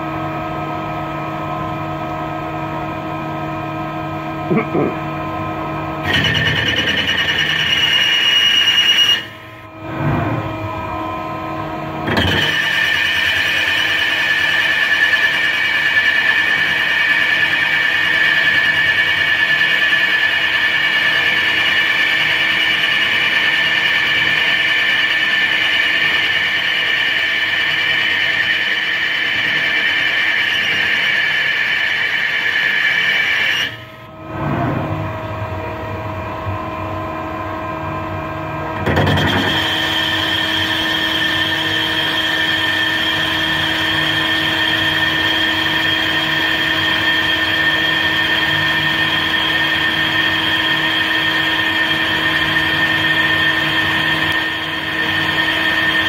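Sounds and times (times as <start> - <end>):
lathe tool squealing: 6.0 - 9.7, 12.1 - 34.1, 38.8 - 56.0.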